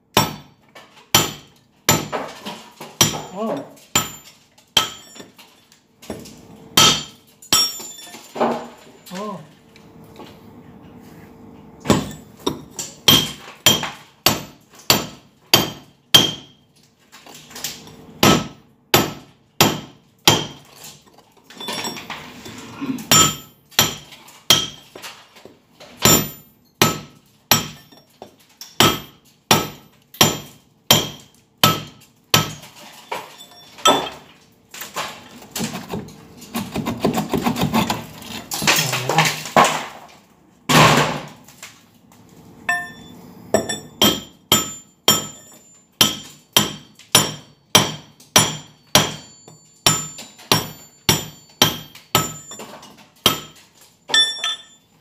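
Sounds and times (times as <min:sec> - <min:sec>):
hammer striking steel chisel: 0:00.2 - 0:02.3, 0:03.0 - 0:05.4, 0:06.8 - 0:08.2, 0:11.8 - 0:16.6, 0:18.2 - 0:20.7, 0:23.1 - 0:24.9, 0:26.0 - 0:28.0, 0:28.7 - 0:32.7, 0:42.7 - 0:54.8.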